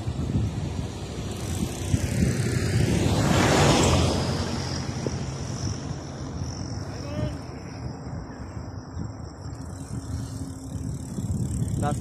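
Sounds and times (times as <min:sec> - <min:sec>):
car passing: 0:00.0 - 0:08.8
wind on microphone: 0:00.0 - 0:12.0.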